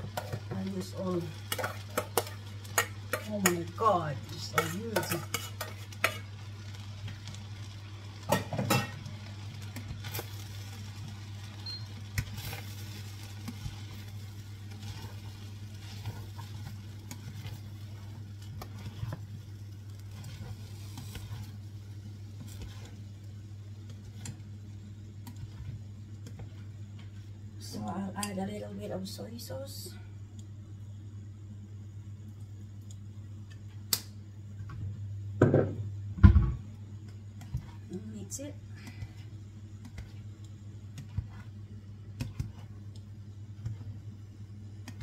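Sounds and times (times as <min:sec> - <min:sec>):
utensil scraping frying pan: 0:00.0 - 0:06.4, 0:12.3 - 0:21.6, 0:22.4 - 0:23.0
light sizzle: 0:00.0 - 0:45.0
steady low hum: 0:00.0 - 0:45.0.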